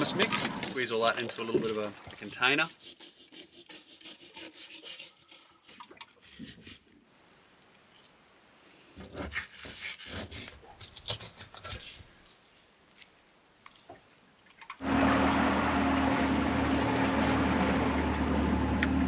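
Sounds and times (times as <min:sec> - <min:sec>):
wet rubbing of fish being cut: 0:02.2 - 0:06.8, 0:09.0 - 0:12.1
boat engine humming: 0:14.8 - 0:19.0.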